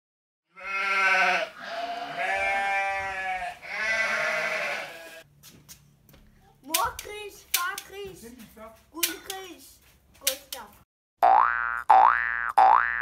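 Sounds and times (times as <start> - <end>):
long bleating calls: 0.5 - 5.2.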